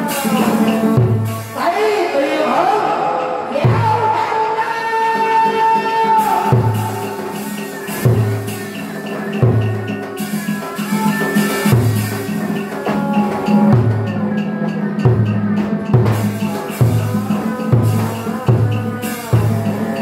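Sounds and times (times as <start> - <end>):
light quick percussion: 5.3 - 20.0.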